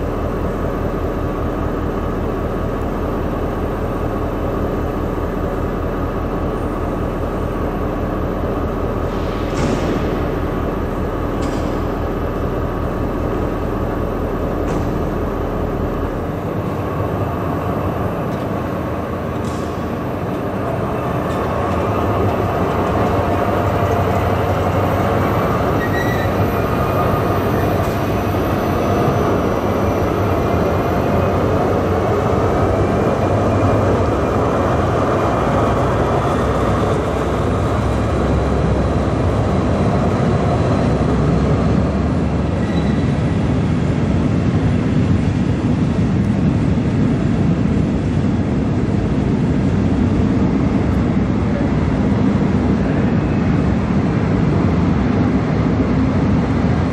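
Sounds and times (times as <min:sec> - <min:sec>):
diesel locomotive engine droning: 0:00.0 - 0:56.9
faint high whining: 0:25.3 - 0:28.0.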